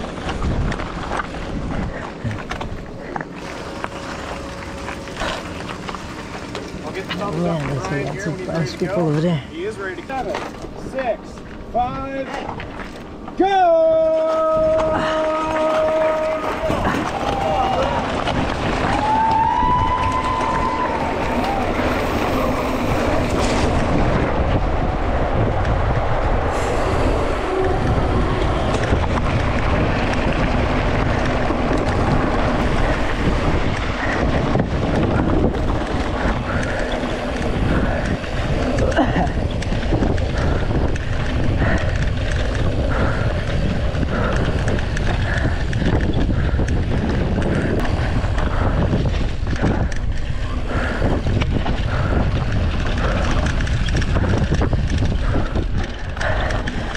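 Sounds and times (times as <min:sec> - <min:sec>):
wind buffeting microphone: 0:00.0 - 0:56.9
tyre rumble: 0:13.9 - 0:56.9.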